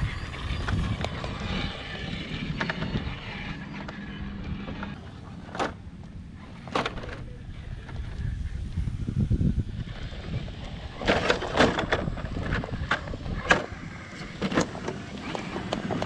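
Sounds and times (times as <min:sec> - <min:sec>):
electric toy car motor whining: 0:00.0 - 0:16.0
tyres grinding over rock: 0:09.7 - 0:16.0.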